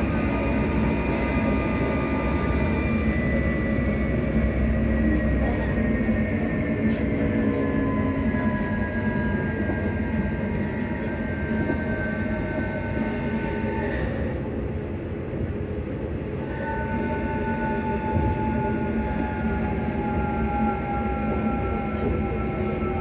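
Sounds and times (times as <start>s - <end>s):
train traction motors whining: 0.0s - 23.0s
wheels rumbling on rail: 0.0s - 23.0s.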